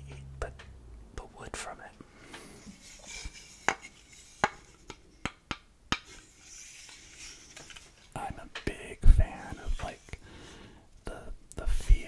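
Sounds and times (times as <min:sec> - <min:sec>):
soft rubbing of wood: 0:02.2 - 0:05.0, 0:06.1 - 0:10.3.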